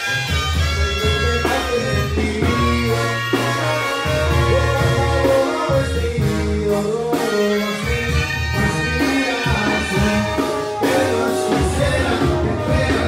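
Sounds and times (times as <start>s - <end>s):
music with held bass notes: 0.0s - 13.0s.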